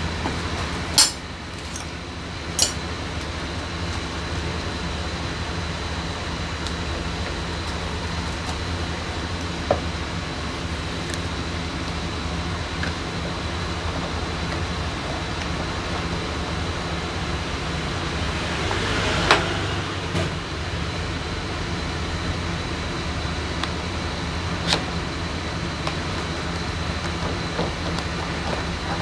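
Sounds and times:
steady low hum: 0.0 - 29.0
rush of noise: 16.7 - 21.5.

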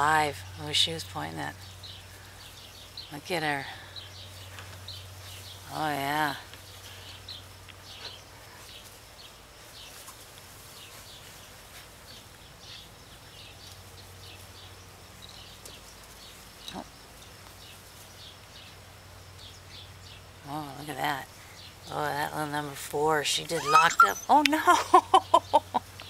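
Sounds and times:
low animal call: 23.5 - 24.5
high-pitched animal chirps: 23.5 - 24.6.

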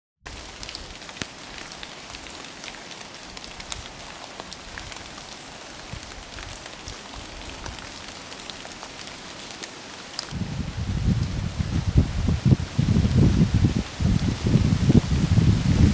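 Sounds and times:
sharp raindrop ticks: 0.3 - 10.4
light rain hissing: 0.3 - 15.9.

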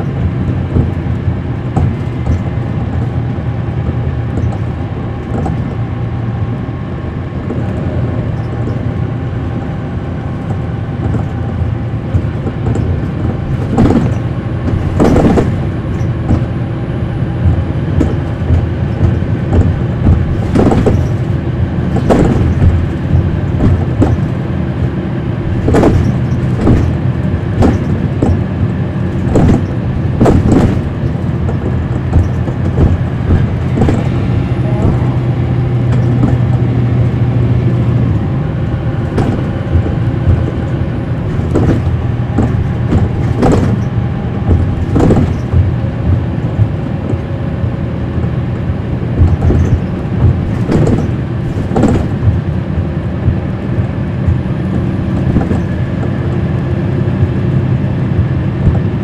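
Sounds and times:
bus diesel engine droning: 0.0 - 59.0
sharp knocks: 0.4 - 3.2, 10.4 - 16.6, 17.4 - 24.4, 25.6 - 27.0, 27.6 - 28.5, 29.1 - 37.2, 39.0 - 47.3, 49.2 - 56.4, 58.6 - 59.0.

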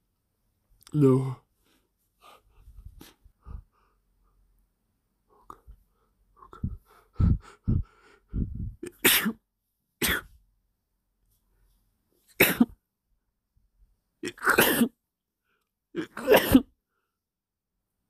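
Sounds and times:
person sneezing: 8.8 - 9.4, 10.0 - 10.4, 12.3 - 12.8, 14.2 - 15.0, 16.0 - 16.8.

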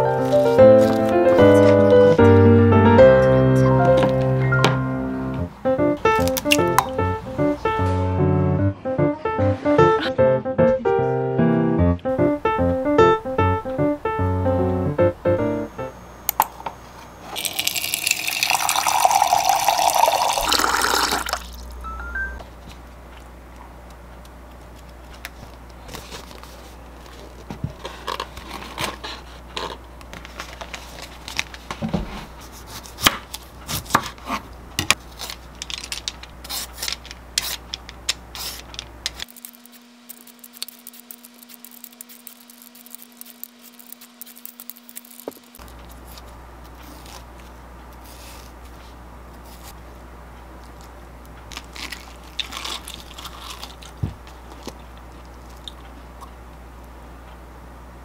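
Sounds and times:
pages turning: 0.2 - 1.9, 25.4 - 31.8, 38.4 - 49.8
water pouring into a glass: 17.4 - 21.6
vegetable peeler scraping rind: 36.4 - 37.7, 38.4 - 46.2.

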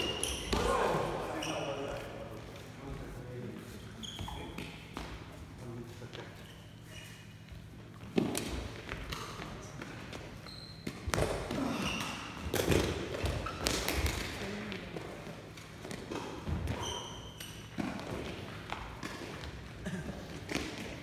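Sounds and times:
shoe squeaks: 0.0 - 0.7, 1.3 - 1.9, 3.7 - 5.0, 6.1 - 7.5, 10.3 - 12.4, 16.7 - 17.8.

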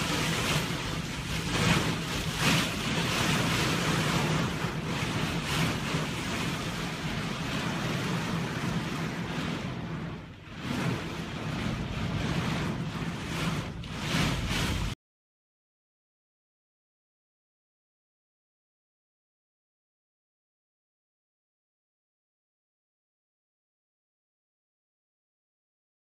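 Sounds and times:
heavy rain: 0.0 - 15.0
storm wind on microphone: 0.0 - 15.0.

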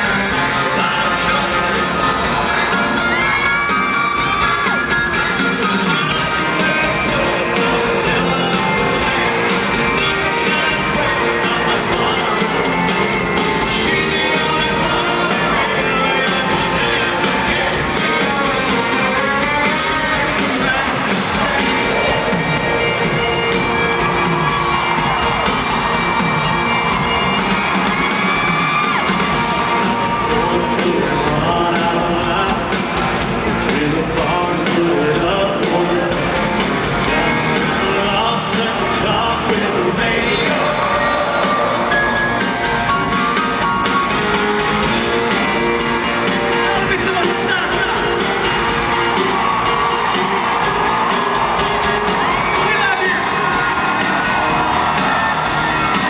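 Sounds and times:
person singing: 0.0 - 24.0, 29.4 - 42.7
country band playing guitars: 0.0 - 56.0
stadium crowd: 0.0 - 56.0.

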